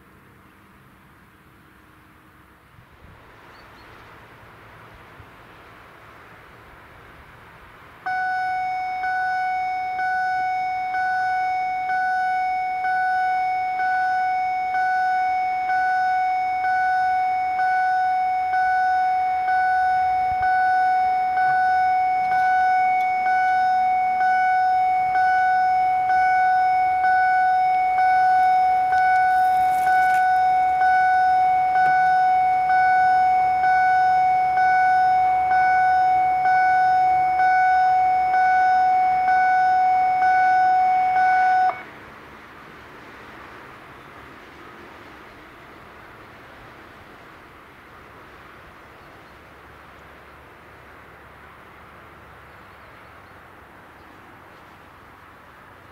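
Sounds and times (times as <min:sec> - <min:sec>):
pulsing high warning tone: 0:08.1 - 0:41.9.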